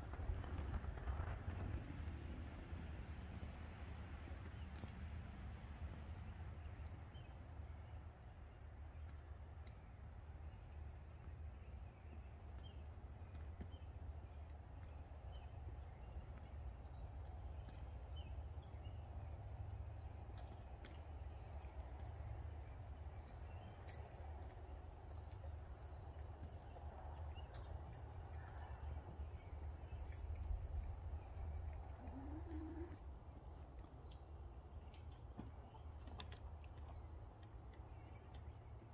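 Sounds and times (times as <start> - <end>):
steady low rumble: 10.4 - 38.9
hen clucking: 32.0 - 33.1.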